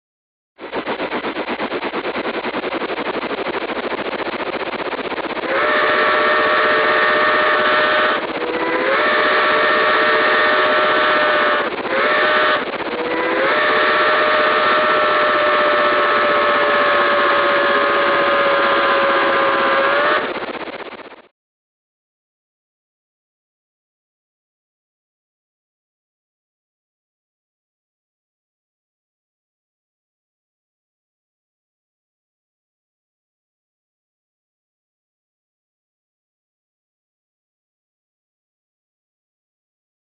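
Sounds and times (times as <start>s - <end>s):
steam locomotive exhaust chuffs: 0.7s - 21.2s
chime steam whistle blasts: 5.4s - 20.4s.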